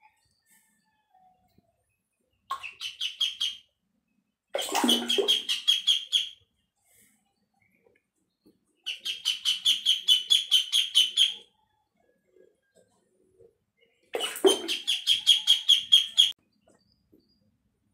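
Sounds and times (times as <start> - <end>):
duckling peeping loudly: 2.5 - 3.7, 4.7 - 6.4, 8.9 - 11.5, 14.4 - 16.3.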